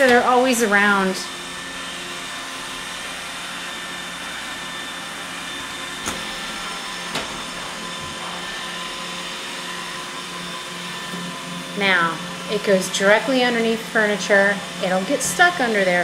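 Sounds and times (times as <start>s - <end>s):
robot vacuum running: 0.0s - 16.0s.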